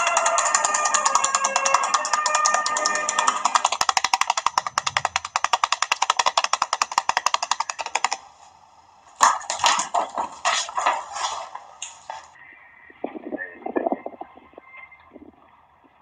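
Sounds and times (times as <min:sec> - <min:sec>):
music with fast percussive beat: 0:00.0 - 0:08.2.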